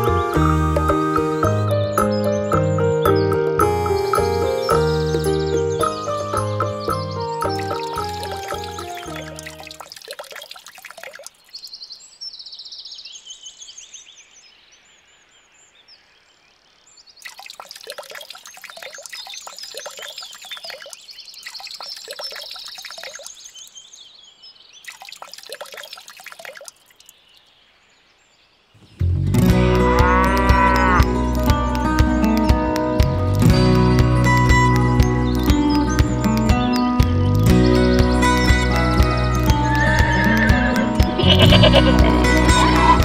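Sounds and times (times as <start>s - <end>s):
juice squelching and dripping: 7.6s - 11.6s, 17.2s - 23.5s, 24.8s - 27.2s
loud music: 37.5s - 43.0s.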